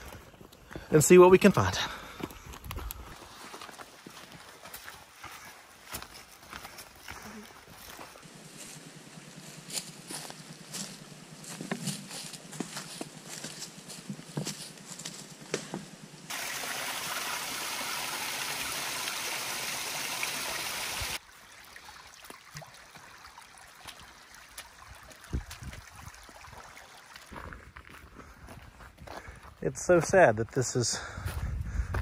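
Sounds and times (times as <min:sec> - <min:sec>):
footsteps on rocky trail: 0:00.0 - 0:16.0, 0:25.3 - 0:32.0
footsteps on dry leaves: 0:02.2 - 0:15.7
running water: 0:16.3 - 0:27.4.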